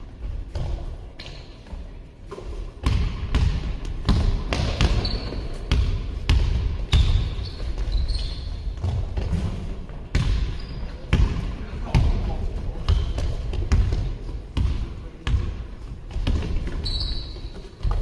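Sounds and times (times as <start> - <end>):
sneakers squeaking on floor: 4.1 - 12.0, 12.8 - 14.0, 16.1 - 18.0.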